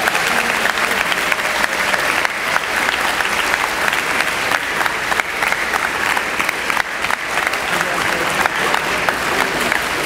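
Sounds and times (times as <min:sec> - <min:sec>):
audience applause: 0:00.0 - 0:10.0.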